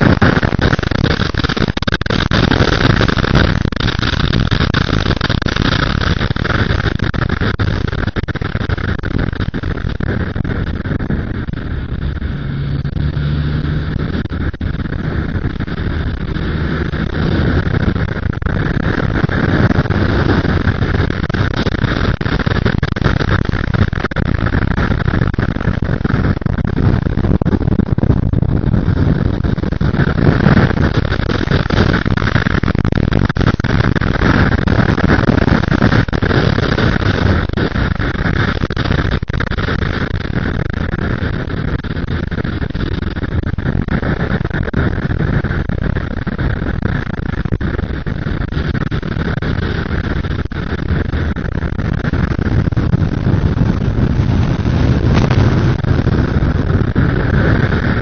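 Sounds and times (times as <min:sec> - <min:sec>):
wind rush on microphone: 0:00.0 - 0:58.0
motorcycle engine running: 0:09.7 - 0:22.2, 0:52.7 - 0:58.0.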